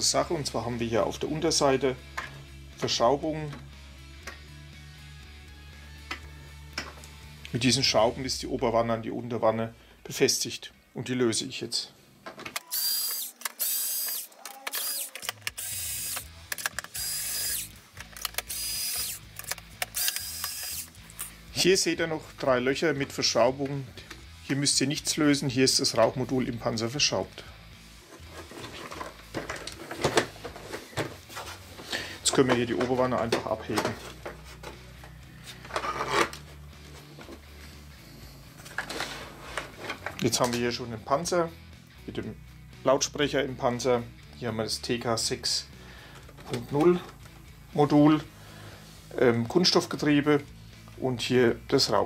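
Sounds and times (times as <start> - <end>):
electric screwdriver whining: 12.6 - 21.3
plastic clatter and scraping: 28.2 - 34.8, 35.6 - 36.4, 38.6 - 40.2.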